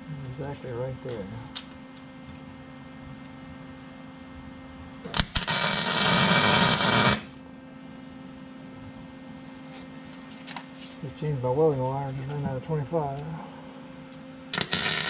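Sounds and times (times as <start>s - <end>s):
steady low hum: 0.0s - 15.0s
welding arc crackling: 5.1s - 7.3s, 14.5s - 15.0s.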